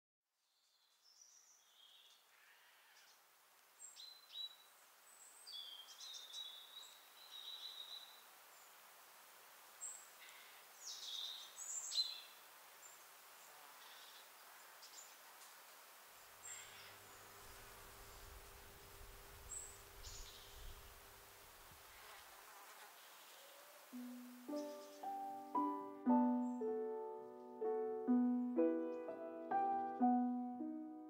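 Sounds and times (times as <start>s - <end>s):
birds chirping and calling: 23.0s - 26.8s.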